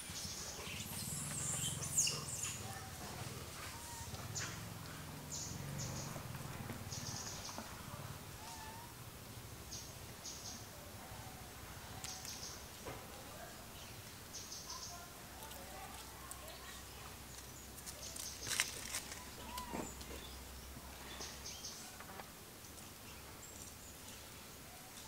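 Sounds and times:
steady low hum: 0.0s - 11.8s
high bird chirps: 0.2s - 2.8s.

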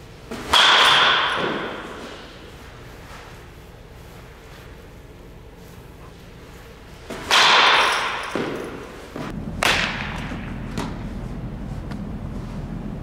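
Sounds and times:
bat hitting ball: 0.3s - 2.5s, 7.1s - 11.0s.

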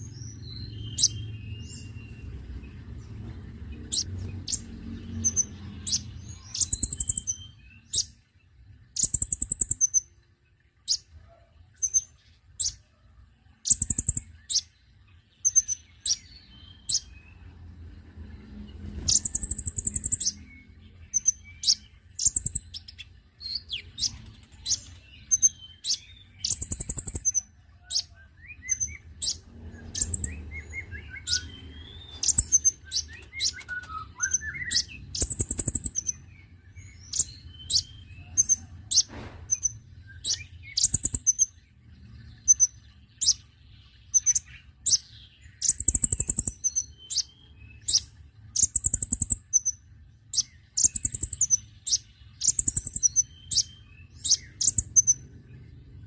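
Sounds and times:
bird chirping: 0.0s - 56.0s
bird twittering: 3.9s - 8.2s, 8.9s - 10.1s, 13.6s - 14.7s, 18.9s - 41.6s, 44.0s - 55.6s.

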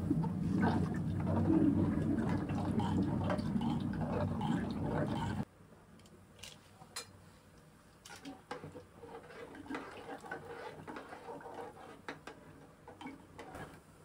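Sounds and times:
metal ladle scraping pot: 8.6s - 12.1s.

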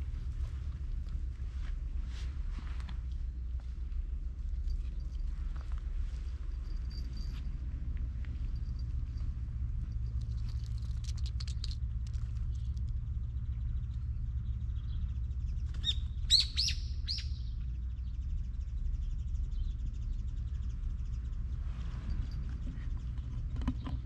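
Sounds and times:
low background rumble: 0.0s - 24.0s
bird chirping: 13.3s - 21.5s.

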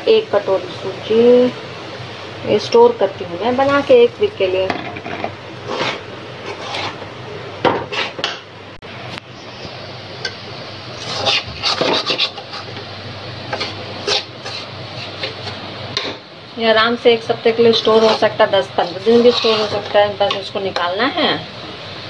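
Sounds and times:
metal spatula scraping a pan: 4.8s - 7.1s, 7.8s - 8.4s, 11.0s - 12.8s, 13.5s - 16.1s, 17.7s - 20.5s.

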